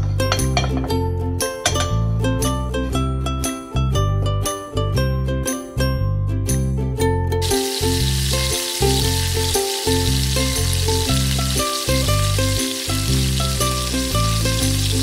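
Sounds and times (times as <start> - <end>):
background music: 0.0 - 15.0
chicken sizzling in frying pan: 7.4 - 15.0.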